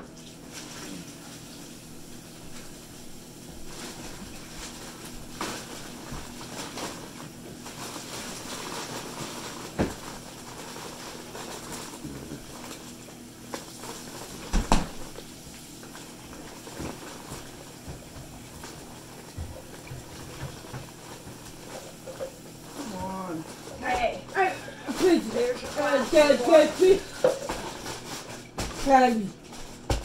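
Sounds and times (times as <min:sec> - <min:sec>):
kitchen knocks and clatter: 0:14.4 - 0:15.2, 0:16.7 - 0:22.4, 0:24.9 - 0:30.0.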